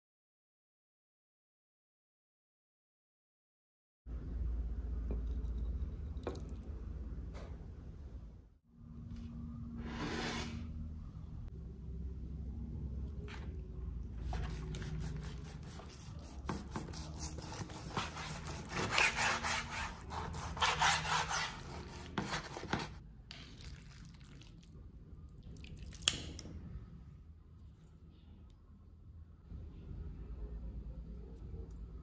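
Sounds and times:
knife cutting meat on board: 14.2s - 23.0s.

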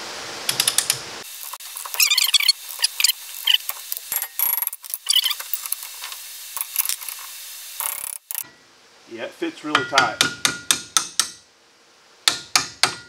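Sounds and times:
metal tools clinking and scraping: 1.4s - 8.5s.

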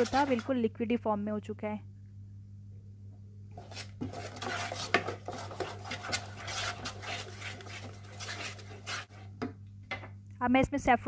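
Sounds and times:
wooden spatula scraping a pan: 0.0s - 0.5s, 3.6s - 9.4s.

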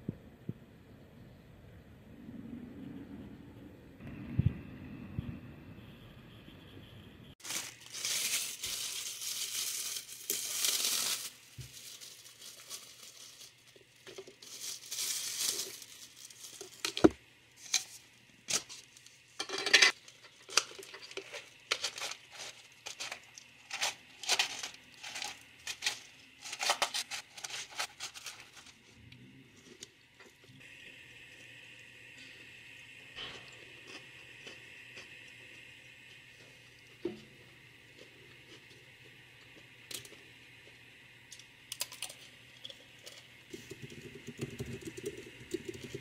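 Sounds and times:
packaging crinkling and tearing: 7.4s - 19.1s, 20.0s - 28.9s.

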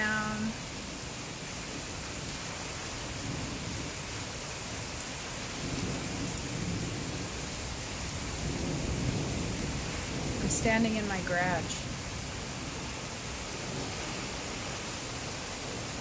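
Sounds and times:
steady rain falling: 0.0s - 16.0s
low rumble of thunder: 2.9s - 14.6s.

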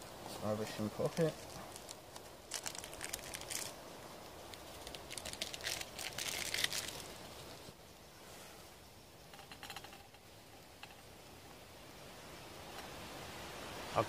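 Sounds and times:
coffee sachet crinkling: 1.1s - 7.1s.

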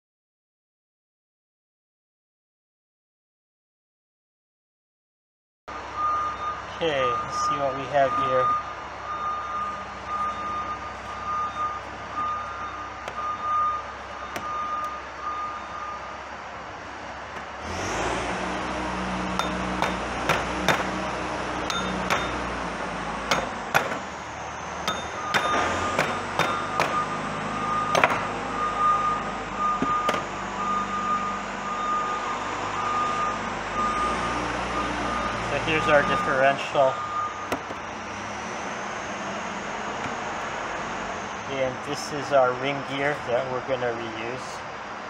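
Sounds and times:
electronic alarm beeping: 6.0s - 16.2s, 21.7s - 22.4s, 24.8s - 37.6s
vehicle engine running: 8.0s - 41.9s
metal clinks and knocks: 21.7s - 22.5s, 24.8s - 27.0s.

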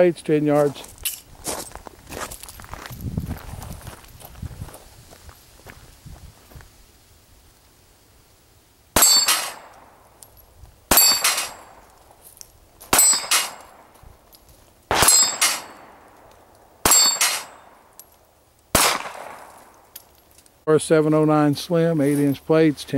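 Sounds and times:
steel plate clanging: 9.0s - 9.7s, 10.9s - 11.8s, 12.9s - 13.7s, 15.0s - 15.9s, 16.9s - 17.7s
pistol shots: 9.0s - 10.0s, 10.9s - 11.9s, 12.9s - 14.0s, 14.9s - 17.8s, 18.7s - 19.8s.

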